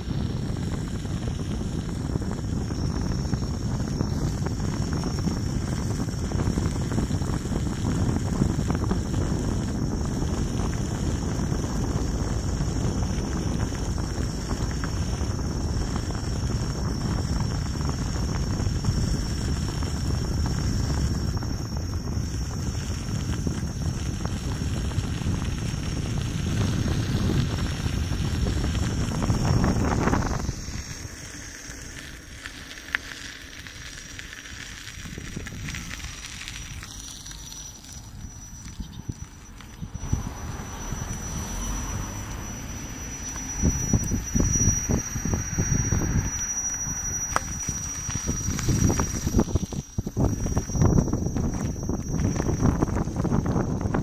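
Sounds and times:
wind buffeting microphone: 0.0s - 32.5s, 33.1s - 54.0s
thin high-pitched tone: 35.2s - 54.0s.

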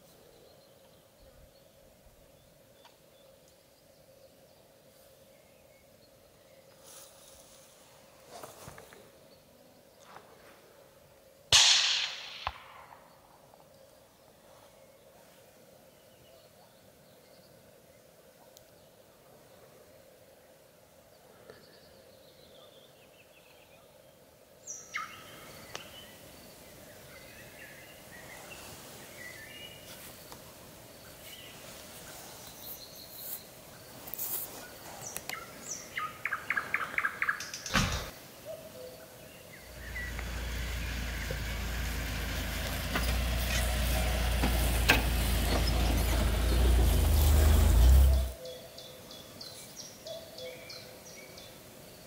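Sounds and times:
songbirds chirping: 0.0s - 52.0s
sharp crack: 11.5s - 13.6s.

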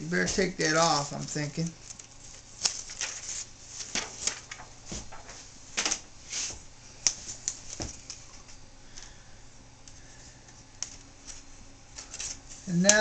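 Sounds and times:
plastic film crackling: 0.2s - 6.0s.

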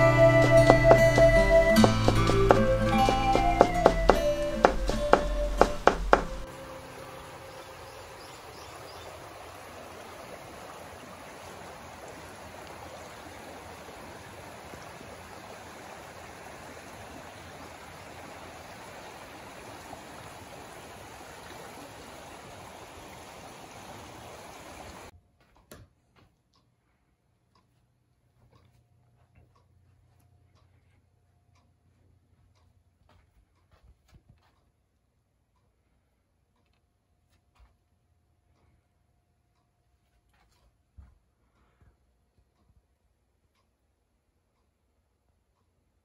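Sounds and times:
river water rushing: 0.0s - 25.1s.

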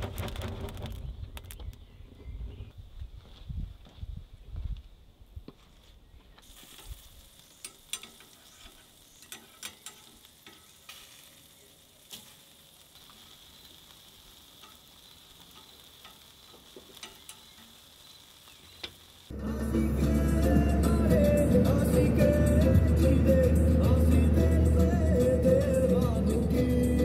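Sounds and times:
grill pops and crackles: 0.0s - 1.8s, 6.4s - 19.4s
meat sizzling on charcoal grill: 6.4s - 27.0s.

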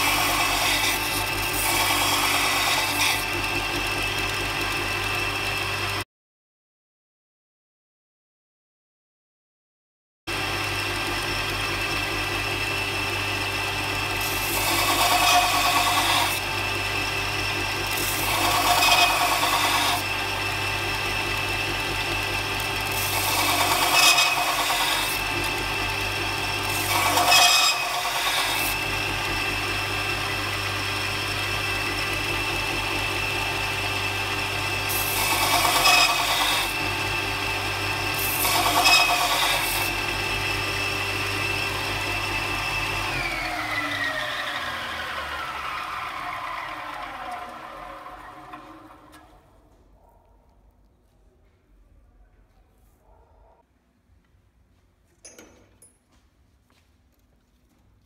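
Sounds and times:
belt sander running: 0.0s - 6.0s, 10.3s - 49.4s
drill bit grinding on belt: 0.0s - 6.0s, 10.3s - 49.3s.

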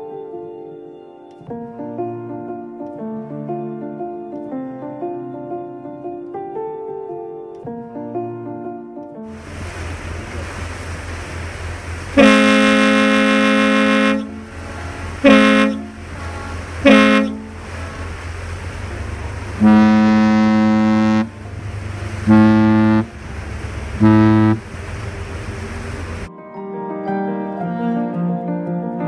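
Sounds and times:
low engine rumble: 9.4s - 26.3s
deeper ship's whistle answering: 12.1s - 18.0s, 19.6s - 21.4s, 22.2s - 23.1s, 24.0s - 24.6s
ship's whistle blasts: 12.1s - 18.2s, 19.6s - 21.4s, 22.2s - 23.1s, 24.0s - 24.7s.

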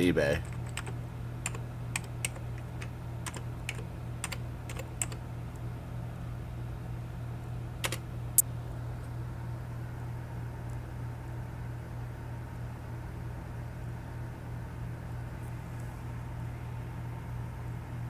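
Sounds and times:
steady low hum: 0.0s - 18.0s
keyboard keystroke clicks: 0.4s - 5.2s, 7.8s - 8.0s.

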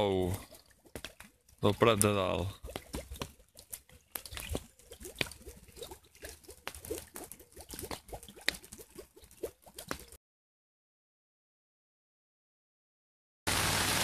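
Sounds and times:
water bubbling and gurgling: 0.0s - 10.2s.

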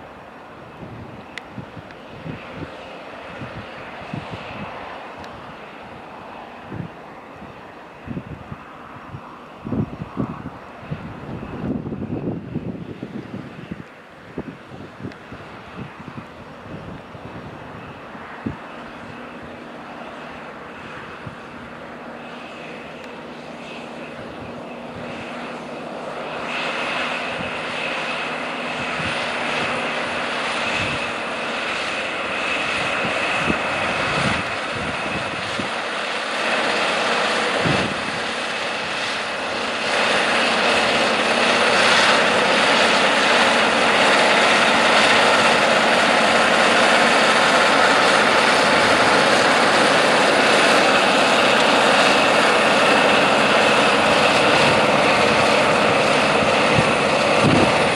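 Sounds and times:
tractor diesel engine under load: 36.6s - 57.9s.

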